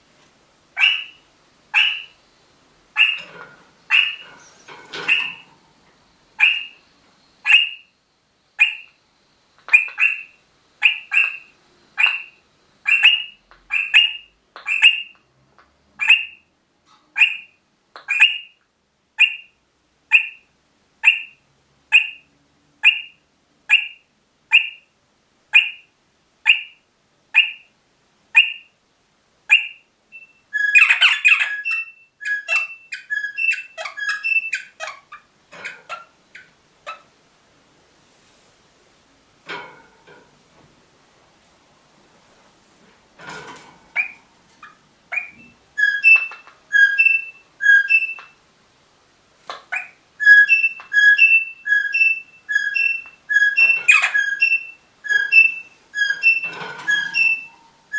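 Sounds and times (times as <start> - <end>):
parrot calling sharp notes: 0.8 - 2.1, 3.0 - 4.4, 6.4 - 6.8, 45.1 - 48.3, 49.7 - 57.9
parrot chattering: 0.8 - 2.2, 2.9 - 5.5, 6.4 - 6.8, 7.4 - 7.8, 8.6 - 8.9, 9.7 - 15.2, 16.0 - 16.4, 17.2 - 18.5, 21.0 - 22.2, 23.7 - 24.8, 29.5 - 29.8, 30.6 - 37.1, 43.9 - 48.4, 49.5 - 57.7.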